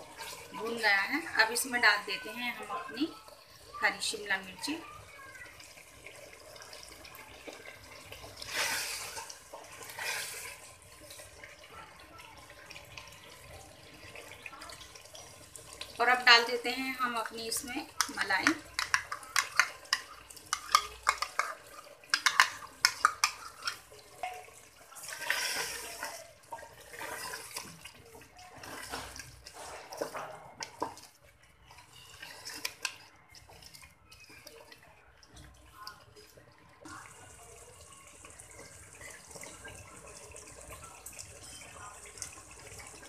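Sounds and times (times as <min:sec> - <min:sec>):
wooden spatula stirring food: 0:00.0 - 0:16.0, 0:16.7 - 0:43.0
cooking hiss: 0:02.9 - 0:11.7, 0:12.6 - 0:27.8.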